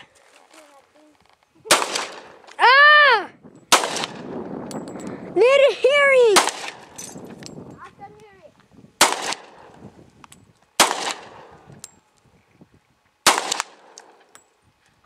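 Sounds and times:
pistol shots: 1.7s - 2.4s, 3.7s - 4.3s, 6.4s - 7.0s, 9.0s - 9.8s, 10.8s - 11.5s, 13.2s - 14.2s.

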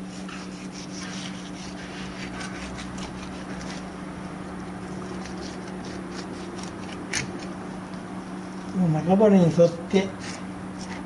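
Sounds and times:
knife scraping fish: 0.0s - 4.0s, 4.8s - 7.5s
steady low hum: 0.0s - 11.0s.

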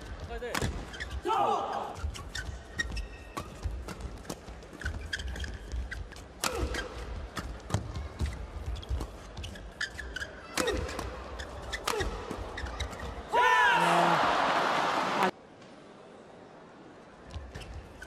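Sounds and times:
shoe squeaks on court: 0.9s - 7.6s, 8.2s - 13.2s, 17.4s - 18.0s
racket hitting shuttlecock: 6.4s - 9.1s, 9.8s - 13.2s.

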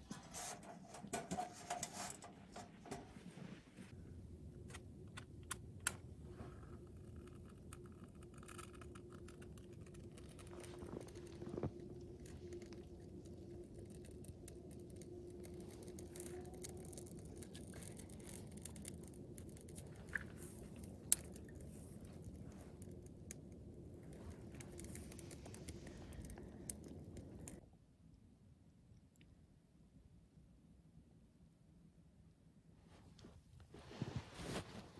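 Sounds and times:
low steady background noise: 0.0s - 34.9s
fire crackling and popping: 6.7s - 27.6s.

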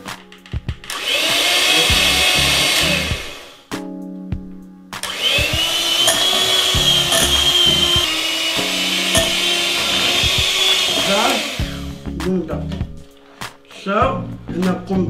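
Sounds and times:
hand mixer motor whine: 1.0s - 3.5s, 5.0s - 12.0s
beaters churning in glass bowl: 5.4s - 11.6s.

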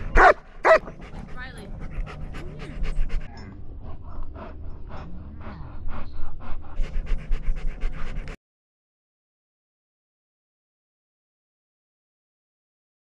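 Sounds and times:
dog panting: 0.0s - 8.4s.

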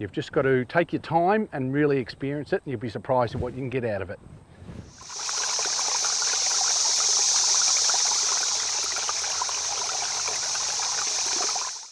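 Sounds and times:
hissing rush with crackling: 4.9s - 11.9s.

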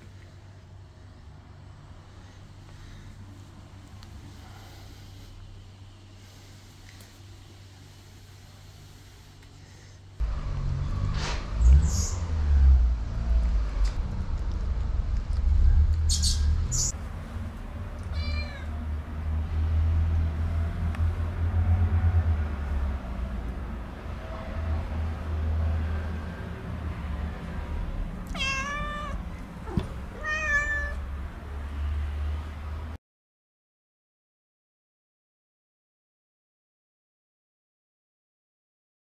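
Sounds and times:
steady low rumble: 11.3s - 31.7s
cat meowing: 18.0s - 18.9s, 28.2s - 31.1s.

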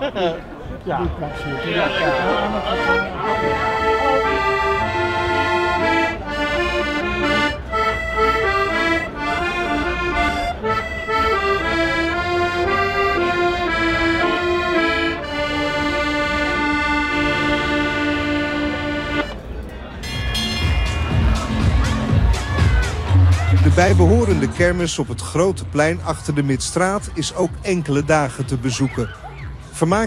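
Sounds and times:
button accordions playing folk tune: 1.0s - 29.2s.

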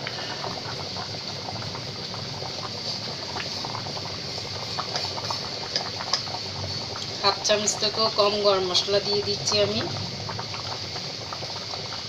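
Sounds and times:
gravy bubbling in a pot: 0.0s - 12.0s.

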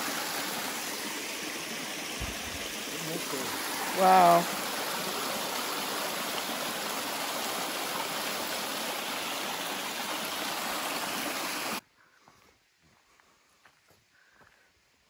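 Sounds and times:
creek water rushing over rock: 0.0s - 11.8s.

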